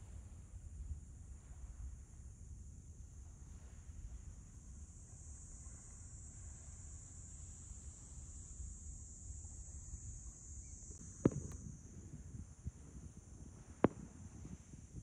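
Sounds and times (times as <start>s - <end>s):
insects chirring: 0.0s - 15.0s
sharp thump: 11.2s - 11.6s.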